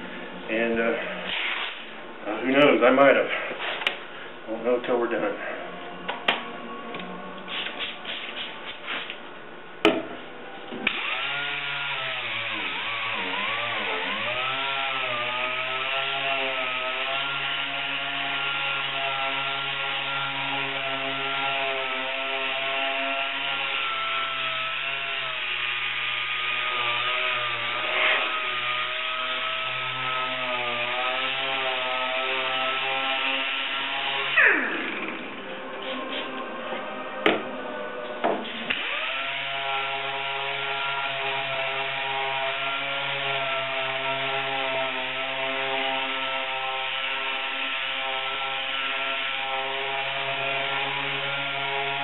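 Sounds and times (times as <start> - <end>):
hiss of air and sanding: 7.5 - 9.2
pneumatic sander whine: 10.7 - 36.3.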